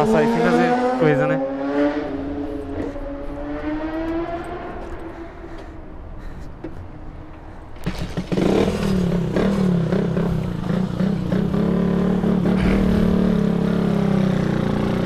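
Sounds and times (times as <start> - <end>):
motorcycle engine running: 7.8 - 15.0.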